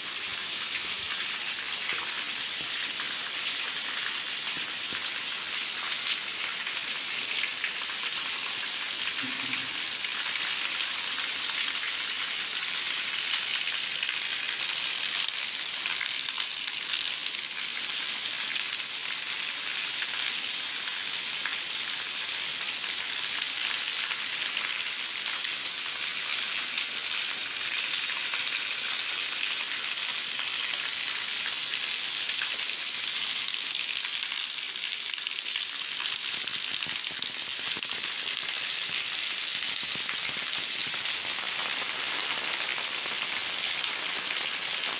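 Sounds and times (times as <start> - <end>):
rain on concrete: 0.0 - 44.9.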